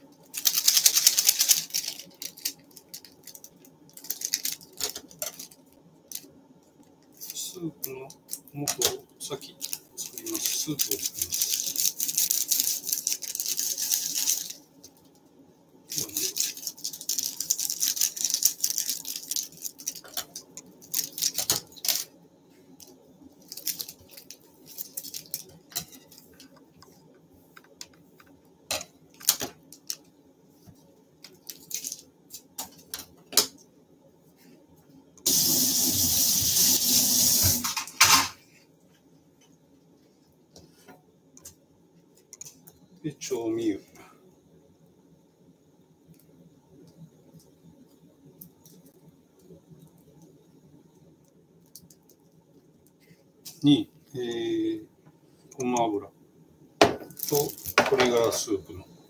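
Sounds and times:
plastic sachets crinkling: 0.2s - 6.3s, 7.1s - 15.1s, 15.9s - 22.1s, 22.8s - 26.6s, 29.2s - 30.1s, 31.2s - 32.9s, 51.6s - 53.8s, 57.0s - 58.5s.

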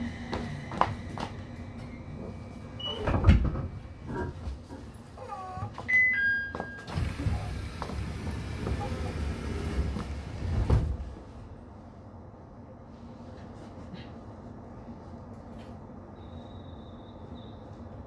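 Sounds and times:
train running rumble: 0.0s - 5.2s, 6.9s - 12.2s
train knocks and clunks: 2.2s - 4.6s, 6.6s - 11.2s.

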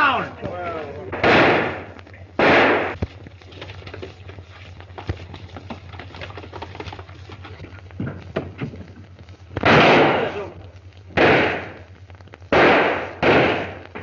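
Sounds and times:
steady low hum: 0.0s - 14.0s
gunshots: 1.1s - 3.0s, 9.6s - 10.4s, 11.1s - 11.8s, 12.5s - 14.0s.

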